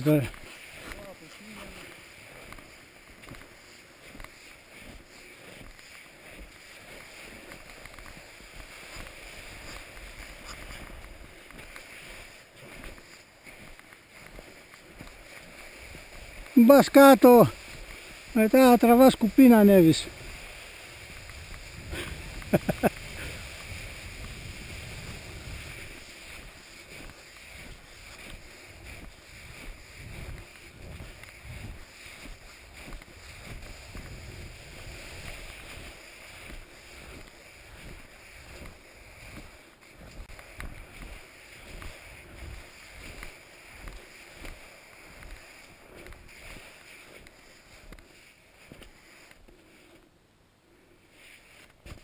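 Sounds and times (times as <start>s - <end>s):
footsteps crunching in deep snow: 0.0s - 50.1s, 50.7s - 52.0s
ski poles planting: 0.0s - 52.0s
wind on microphone: 20.1s - 26.5s, 28.3s - 38.6s.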